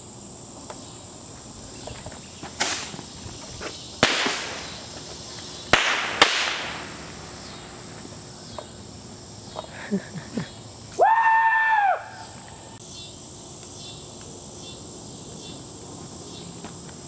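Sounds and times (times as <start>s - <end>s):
explosive bangs with echo: 4.0s - 4.8s, 5.7s - 7.1s.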